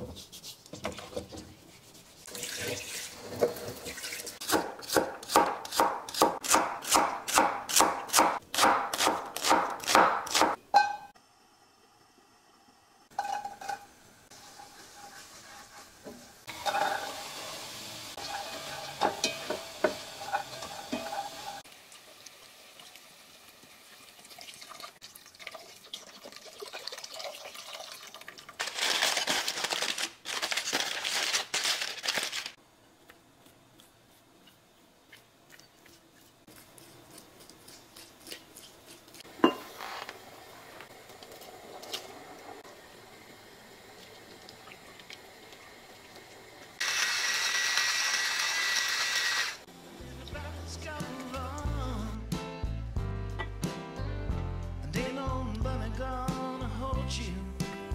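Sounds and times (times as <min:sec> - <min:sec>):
onion sizzling in butter: 0:12.4 - 0:24.2, 0:35.6 - 0:49.7.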